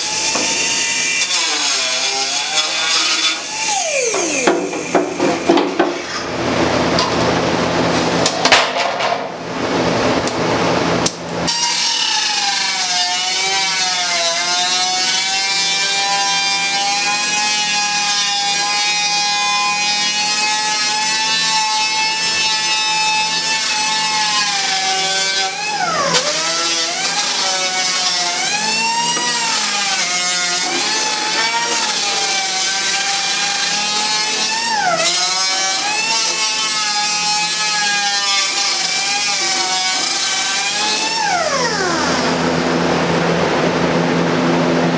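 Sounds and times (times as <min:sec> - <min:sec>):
power tool noise: 0:00.0 - 0:07.0, 0:11.4 - 0:44.9.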